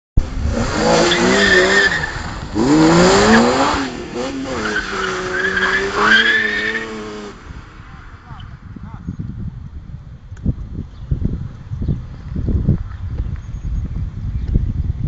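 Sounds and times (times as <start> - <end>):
car engine revving: 0.2 - 8.6
tyres squealing: 4.2 - 7.2.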